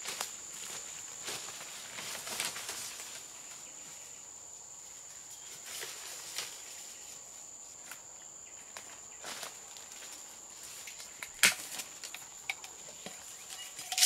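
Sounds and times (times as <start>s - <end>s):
short rustles or crunches: 0.0s - 3.6s
insects droning: 0.0s - 14.0s.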